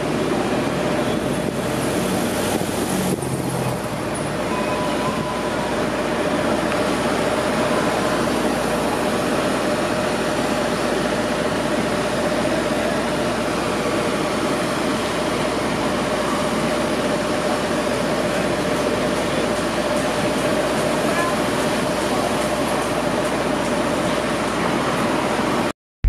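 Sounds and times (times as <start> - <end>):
traffic passing: 0.0 - 13.1
constant mechanical hum: 0.0 - 25.7.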